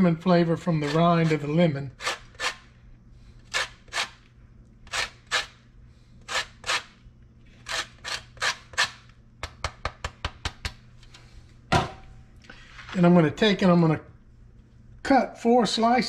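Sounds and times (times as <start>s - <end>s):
rind rasping on metal grater: 0.8s - 2.7s, 3.5s - 4.2s, 4.8s - 5.6s, 6.2s - 9.0s.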